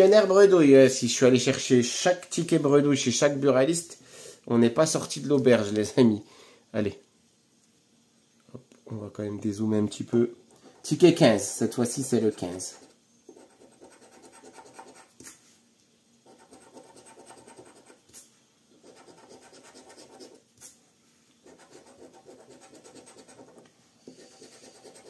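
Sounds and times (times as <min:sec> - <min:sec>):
coin scratching lottery ticket: 0:12.0 - 0:15.1, 0:16.2 - 0:18.0, 0:18.8 - 0:20.4, 0:21.4 - 0:25.0.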